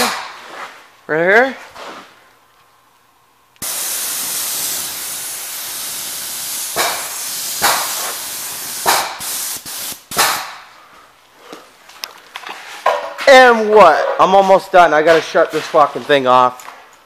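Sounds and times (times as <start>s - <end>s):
spray gun hissing: 3.6s - 10.6s.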